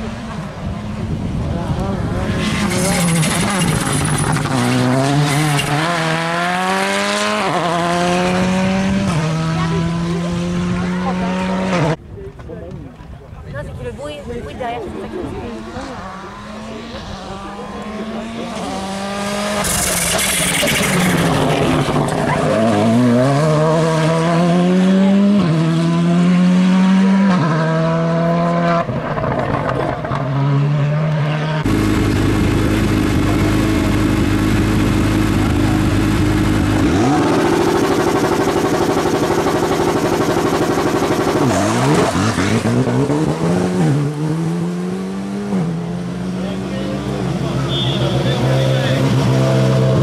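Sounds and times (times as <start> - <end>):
car engine revving: 0.0 - 12.0, 14.9 - 50.0.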